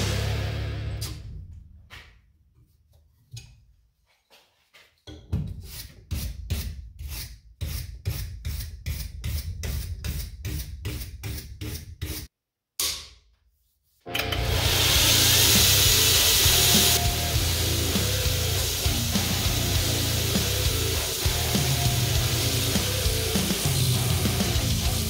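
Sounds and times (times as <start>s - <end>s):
belt grinder running: 14.1s - 25.0s
wire brush scrubbing steel: 14.2s - 25.0s.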